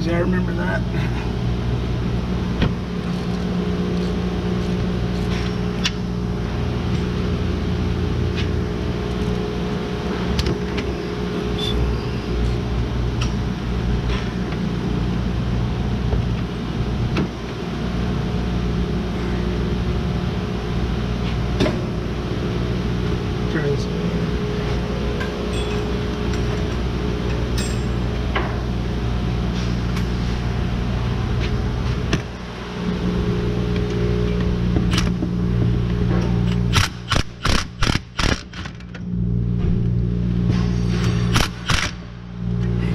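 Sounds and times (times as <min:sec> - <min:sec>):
mechanical hum: 0:00.0 - 0:42.9
hand tools tapping on metal: 0:25.2 - 0:28.5.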